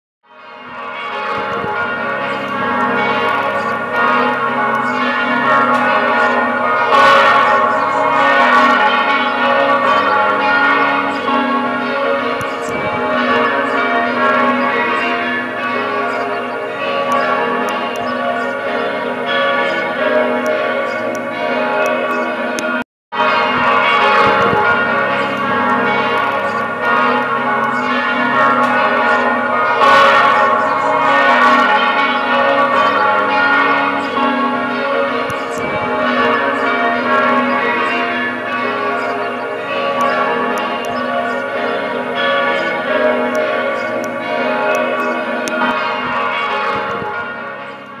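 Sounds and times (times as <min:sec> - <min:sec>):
church bells pealing: 0:00.2 - 0:48.0.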